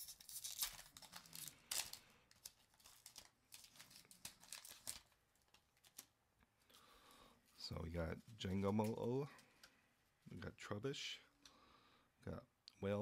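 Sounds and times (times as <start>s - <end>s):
foil wrapper tearing and crinkling: 0.0s - 6.1s.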